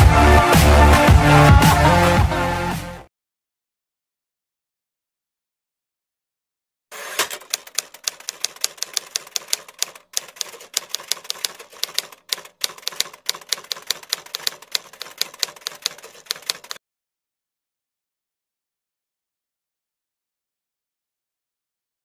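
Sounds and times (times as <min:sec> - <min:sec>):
typewriter key clicks: 0:07.1 - 0:16.8.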